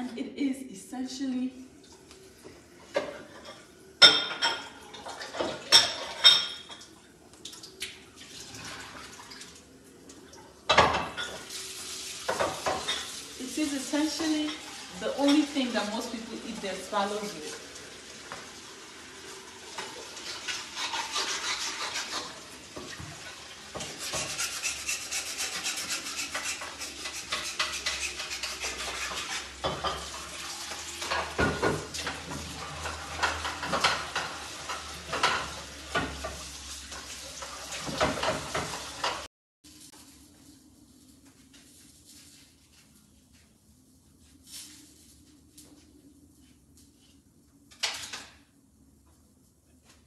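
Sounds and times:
spoon scraping dough in pot: 0:20.2 - 0:22.4, 0:23.8 - 0:29.6.

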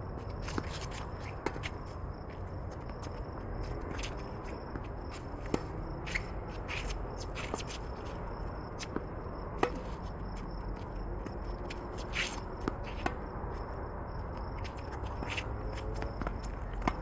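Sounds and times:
racket hitting tennis ball: 0:05.3 - 0:10.0
ball bouncing: 0:15.9 - 0:17.0.

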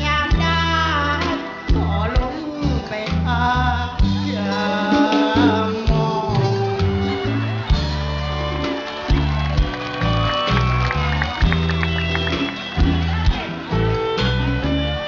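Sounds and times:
person singing into a microphone: 0:00.0 - 0:07.2
bass line: 0:00.0 - 0:15.0.

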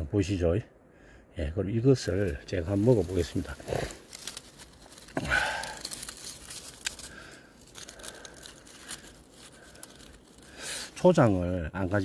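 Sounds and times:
leaf being chewed crunching: 0:02.7 - 0:11.3.

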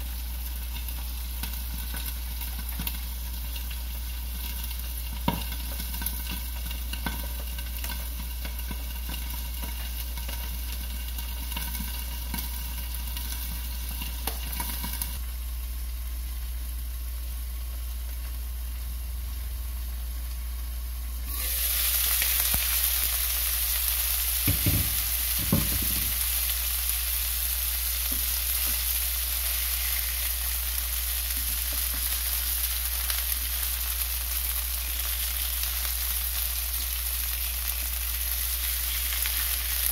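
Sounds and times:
fish sizzling in oil: 0:00.0 - 0:39.9
knocks: 0:24.5 - 0:26.1.

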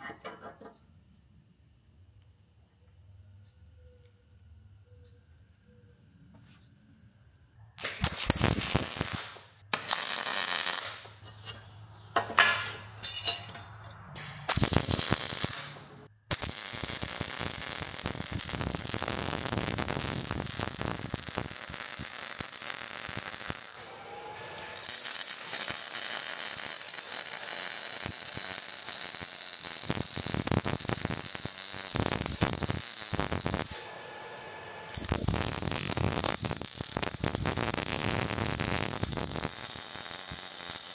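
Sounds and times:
welding arc crackling: 0:07.8 - 0:11.4, 0:14.2 - 0:24.0, 0:24.6 - 0:40.9.

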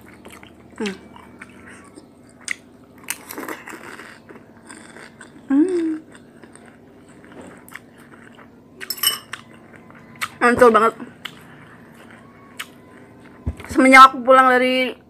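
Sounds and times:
person chewing crunchy food: 0:00.0 - 0:13.4
person humming mmm: 0:05.4 - 0:06.2.

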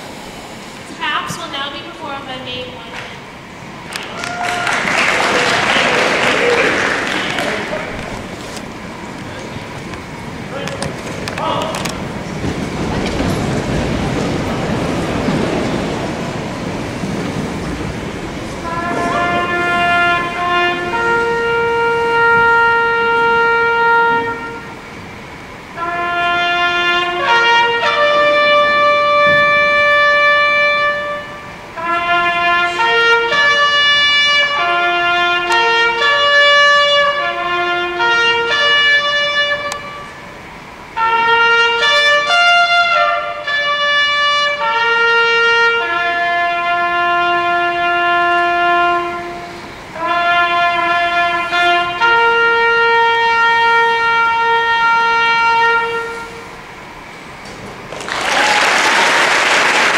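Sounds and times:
audience applause: 0:03.9 - 0:09.5, 0:57.6 - 0:59.9
solo trumpet slow melody: 0:18.4 - 0:57.4.

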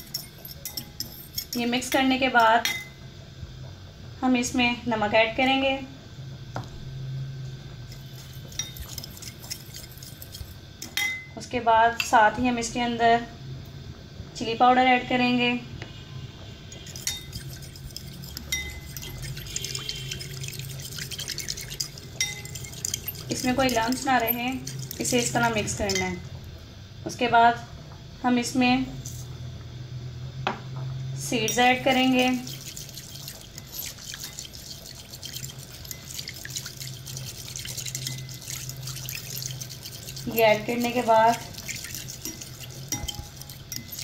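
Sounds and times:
fork clinking against bowl: 0:00.0 - 0:02.0, 0:07.9 - 0:11.2, 0:16.8 - 0:26.2, 0:31.5 - 0:44.0
liquid swishing: 0:07.9 - 0:10.6, 0:16.7 - 0:26.1, 0:31.8 - 0:44.0.

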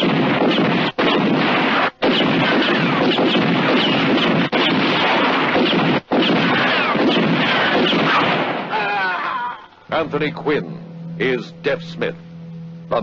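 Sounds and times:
dense gunfire: 0:00.0 - 0:08.8
explosions: 0:00.0 - 0:08.8.

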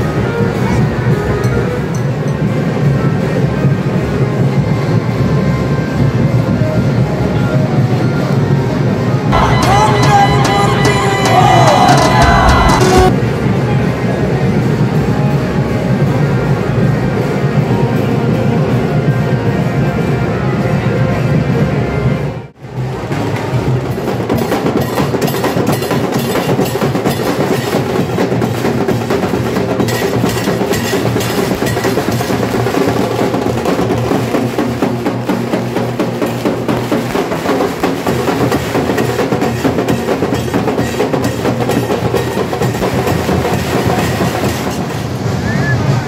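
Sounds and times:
procession drums playing fast: 0:09.3 - 0:13.2, 0:23.9 - 0:44.9.

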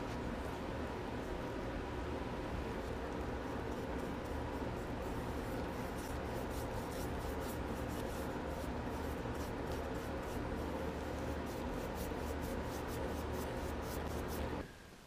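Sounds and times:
steady low hum: 0:00.0 - 0:15.0
paintbrush scratchy strokes: 0:02.6 - 0:14.6.

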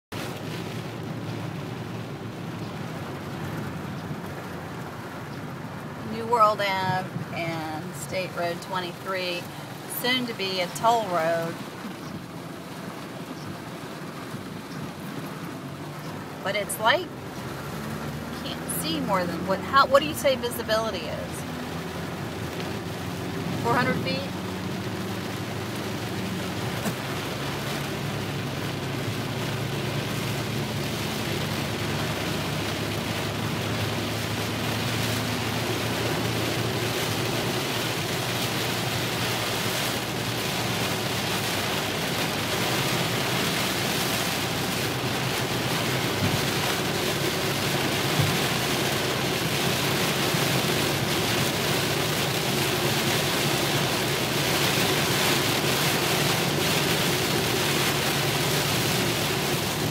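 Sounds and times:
road and tyre noise: 0:00.0 - 0:59.9
heavy rain on car roof: 0:00.1 - 0:59.9.

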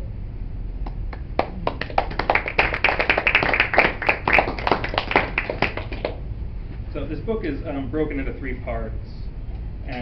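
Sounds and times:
audience applauding: 0:01.4 - 0:06.2.

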